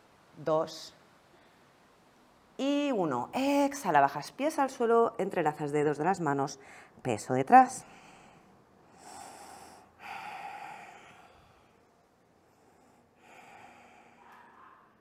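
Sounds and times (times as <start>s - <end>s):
woman breathing: 6.6s - 7.0s, 7.8s - 15.0s.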